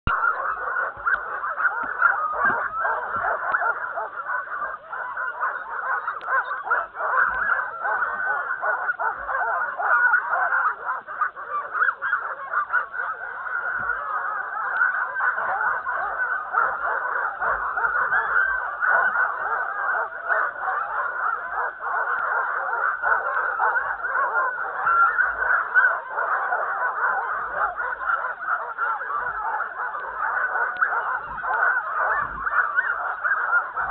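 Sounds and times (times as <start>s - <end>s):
sled dogs yelping and barking: 0.0s - 33.9s.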